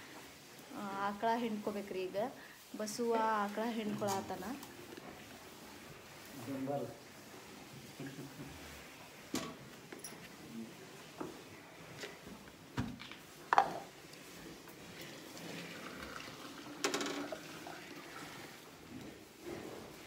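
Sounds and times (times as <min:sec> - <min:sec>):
milk pouring into a can: 0:14.8 - 0:18.8.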